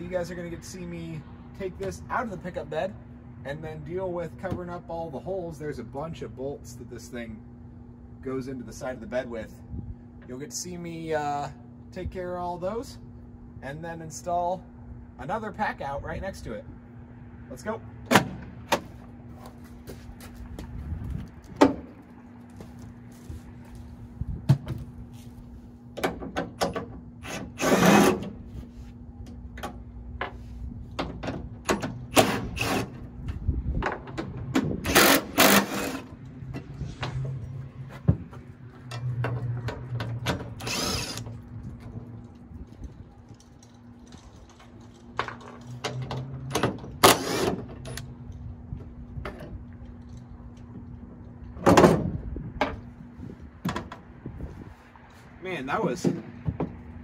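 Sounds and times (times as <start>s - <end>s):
cordless drill running: 40.6s - 41.2s.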